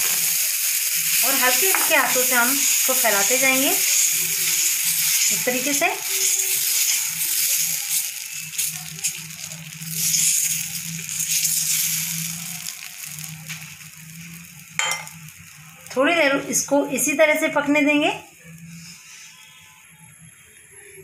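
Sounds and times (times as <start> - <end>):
batter sizzling on hot pan: 0.0 - 21.0.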